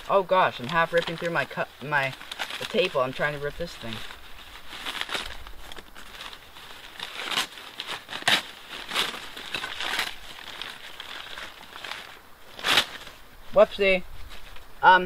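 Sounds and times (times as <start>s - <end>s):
paper crinkling and tearing: 0.0s - 13.6s.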